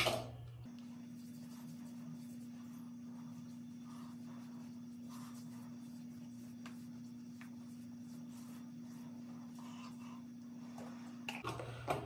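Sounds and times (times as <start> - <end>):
steady low hum: 0.0 - 12.0
fingertips rubbing cream on skin: 0.9 - 10.0.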